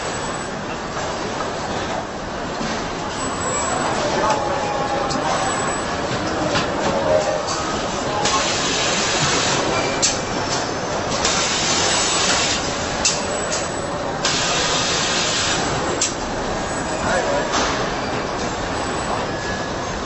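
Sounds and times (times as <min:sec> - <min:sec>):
loud hissing noise: 0:08.2 - 0:09.7, 0:14.2 - 0:15.8.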